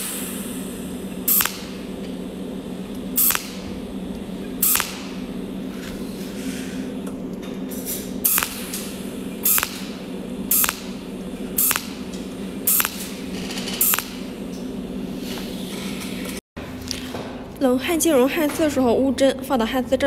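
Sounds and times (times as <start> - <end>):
welding arc pulse hisses: 0.0 - 7.1, 7.7 - 16.4
steady machine hum: 0.0 - 20.0.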